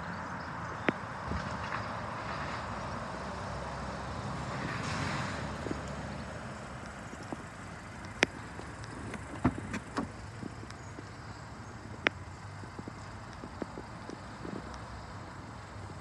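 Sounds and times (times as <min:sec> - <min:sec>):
outdoor background noise: 0:00.0 - 0:16.0
car door latch clicks and knocks: 0:08.8 - 0:10.2.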